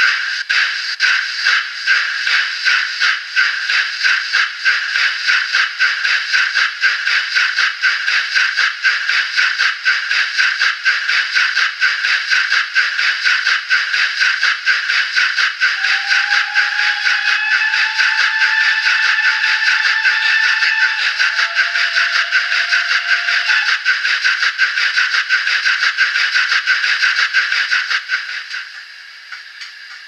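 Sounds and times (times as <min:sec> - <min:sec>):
model steam locomotive chuffs: 0:00.0 - 0:30.0
locomotive whistle tone: 0:15.6 - 0:24.1.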